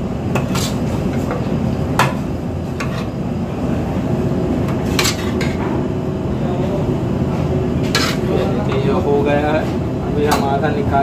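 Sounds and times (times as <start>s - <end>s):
metal spatula scraping onions: 7.8s - 8.3s.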